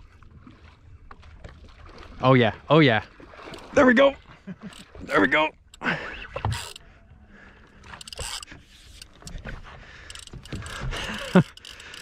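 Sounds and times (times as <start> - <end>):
fishing reel drag buzzing: 6.5 - 6.8, 7.8 - 9.3, 10.1 - 12.0.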